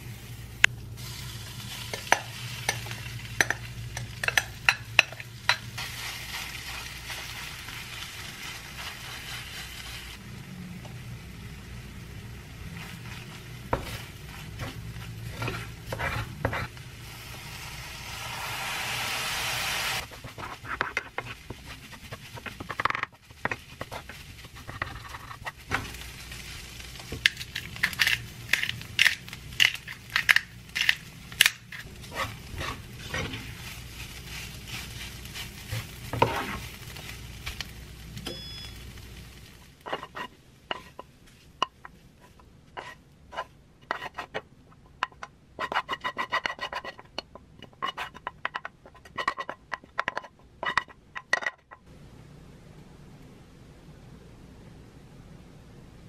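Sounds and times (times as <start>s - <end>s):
rice sizzling in a frying pan: 0.0s - 16.0s, 16.8s - 41.6s
spatula scraping a pan: 12.8s - 16.8s, 19.9s - 25.6s, 31.9s - 37.1s, 39.8s - 41.1s, 42.2s - 44.4s, 45.1s - 50.9s.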